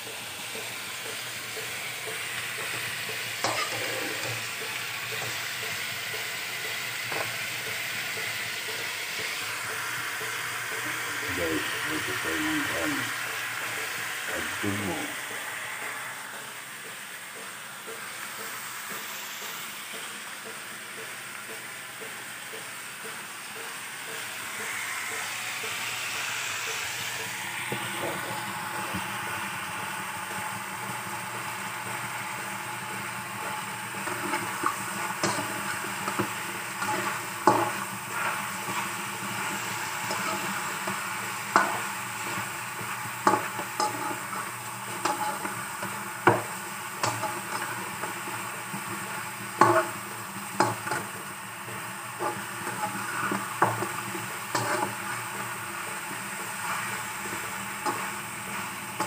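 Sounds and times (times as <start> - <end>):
chicken sizzling in a frying pan: 0.0 - 59.0
metal spatula scraping a pan: 3.4 - 4.5, 34.0 - 46.4, 47.0 - 50.0, 51.7 - 59.0.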